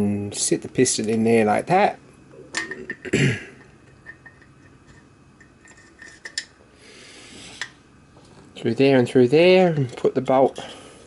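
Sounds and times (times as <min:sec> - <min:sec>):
small brass parts clinking: 0:02.5 - 0:06.6.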